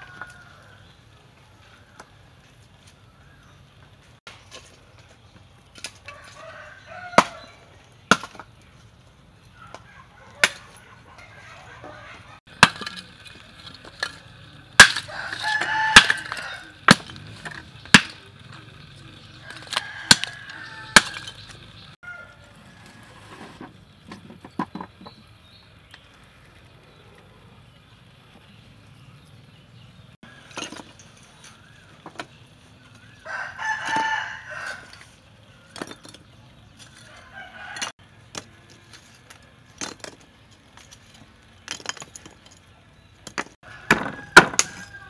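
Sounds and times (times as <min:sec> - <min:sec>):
chickens clucking: 0:09.5 - 0:12.4.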